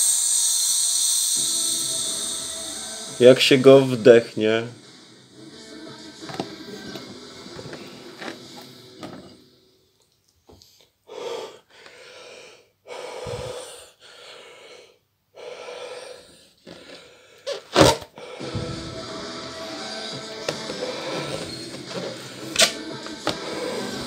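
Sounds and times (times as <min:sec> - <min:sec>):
man breathing into a balloon: 0:10.8 - 0:22.6.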